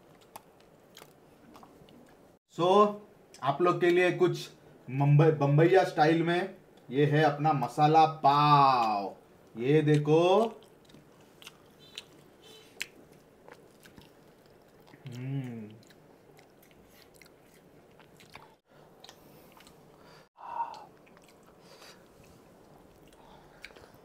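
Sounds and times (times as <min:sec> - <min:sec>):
chewing and wet mouth sounds: 0:00.0 - 0:02.2, 0:08.8 - 0:24.0
hummed voice: 0:15.0 - 0:15.8.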